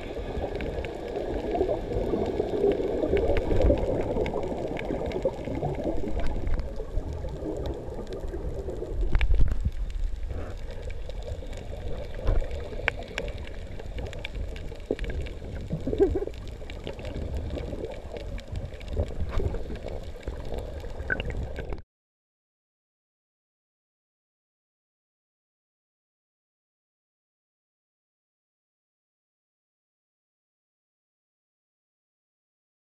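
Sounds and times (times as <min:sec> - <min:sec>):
muffled underwater rumble: 0:00.0 - 0:21.8
water gurgling: 0:00.0 - 0:21.8.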